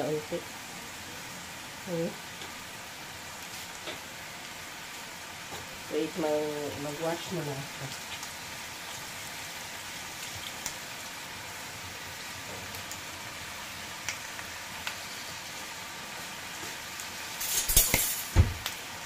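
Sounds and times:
pork fat sizzling in a wok: 0.0 - 19.0.

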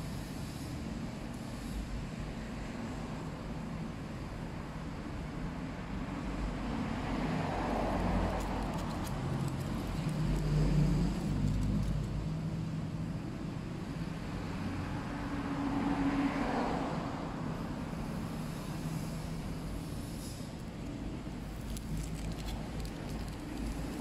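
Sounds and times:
road traffic rumble: 0.0 - 24.0
aluminium foil crinkling: 8.0 - 12.1, 21.4 - 24.0.

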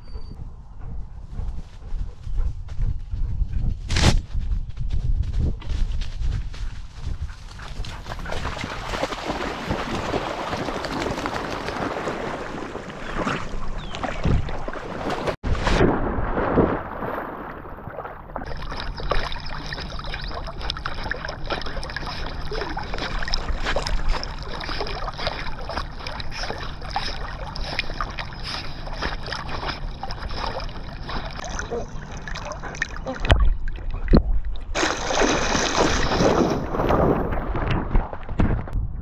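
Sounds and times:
water splashing and sloshing: 7.5 - 38.8
big splash: 8.6 - 19.3, 34.7 - 38.6.

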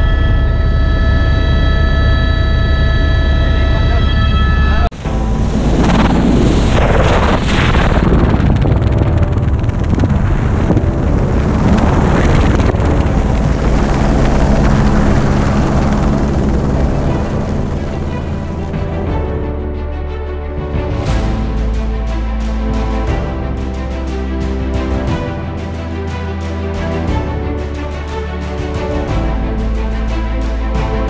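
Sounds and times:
wind rushing over microphone: 4.9 - 19.4
helicopter rotor and engine: 5.1 - 19.2.

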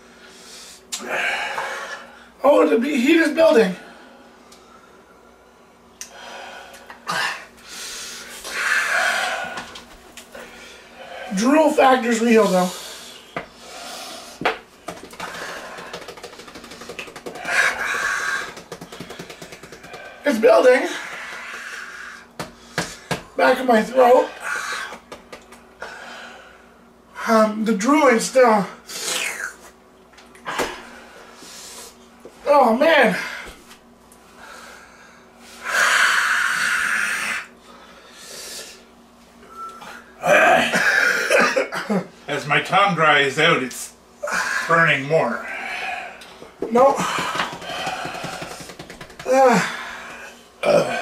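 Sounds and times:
man blowing hissing breath: 6.0 - 9.7, 28.9 - 29.6, 30.5 - 32.0, 34.4 - 38.9
person speaking: 11.3 - 12.9, 16.3 - 21.1, 23.4 - 24.4.

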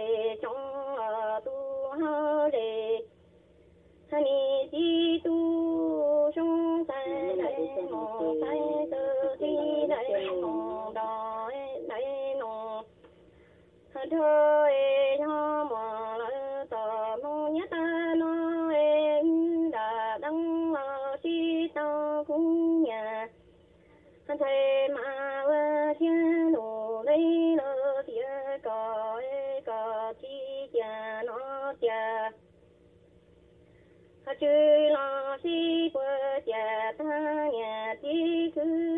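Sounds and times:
woman singing held notes: 5.1 - 12.8.

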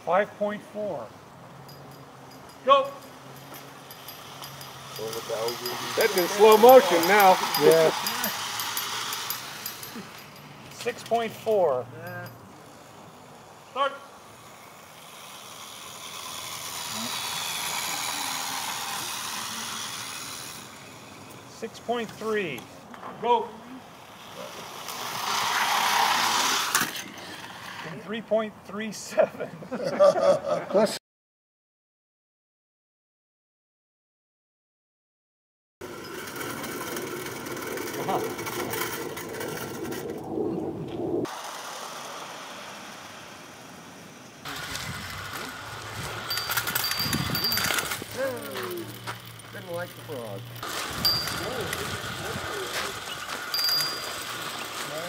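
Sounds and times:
clockwork toy train whirring: 1.7 - 12.3, 14.2 - 22.4, 23.9 - 27.9, 35.8 - 40.4, 41.2 - 55.0.

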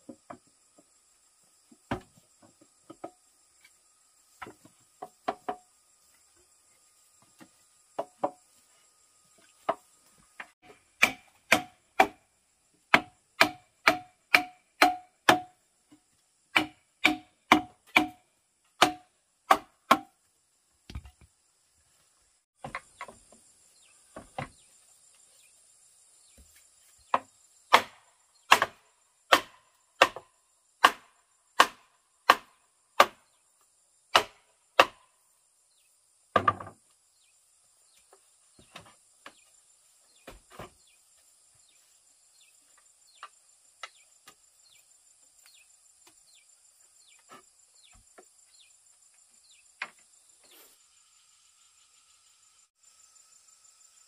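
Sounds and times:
tool striking bamboo: 10.6 - 12.2, 12.9 - 15.6, 16.5 - 20.2, 27.1 - 33.3, 34.1 - 35.1
high insect drone: 20.3 - 54.0.

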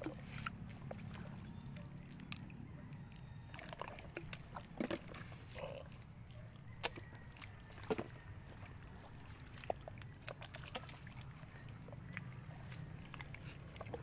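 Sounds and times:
wet squelches in mud: 0.0 - 14.0.

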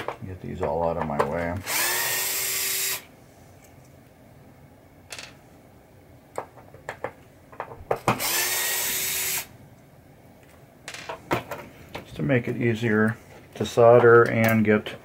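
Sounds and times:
cordless screwdriver running: 1.6 - 3.0, 8.2 - 9.5.

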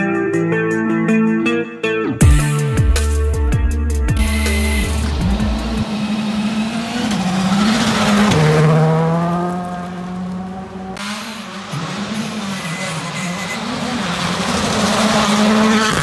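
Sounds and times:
another car engine: 4.2 - 16.0
rally car engine passing: 4.6 - 16.0.

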